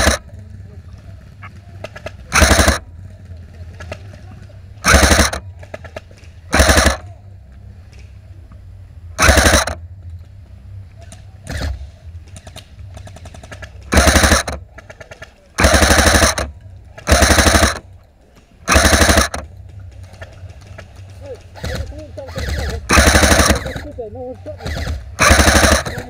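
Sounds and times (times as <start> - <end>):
airsoft rifle full-auto bursts: 0.0 - 0.2, 2.0 - 2.9, 4.8 - 7.1, 9.2 - 9.8, 12.4 - 15.0, 15.6 - 17.9, 18.7 - 19.5, 21.4 - 24.0, 24.6 - 26.0
fainter airsoft gun burst: 0.0 - 0.2, 1.9 - 2.9, 4.8 - 7.1, 9.2 - 9.8, 12.4 - 17.9, 18.6 - 19.5, 21.4 - 24.0, 24.6 - 26.0.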